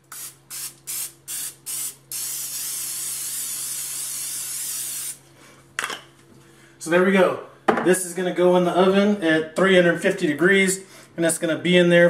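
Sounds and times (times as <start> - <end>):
aerosol cooking spray: 0.0 - 5.2.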